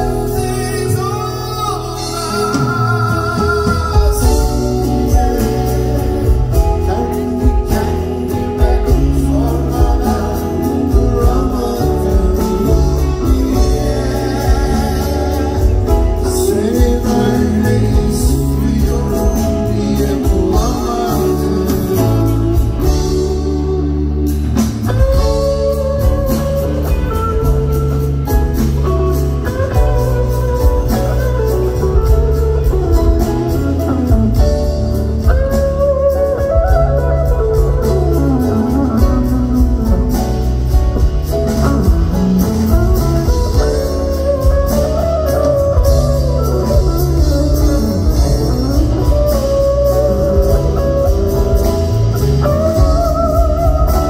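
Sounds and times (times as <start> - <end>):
bass and drums: 0.0 - 54.0
electric guitar solo: 22.3 - 54.0.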